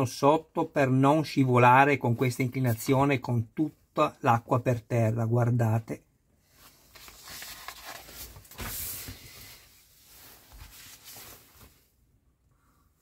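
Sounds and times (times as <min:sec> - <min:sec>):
magazine pages rustling: 0:06.5 - 0:11.9.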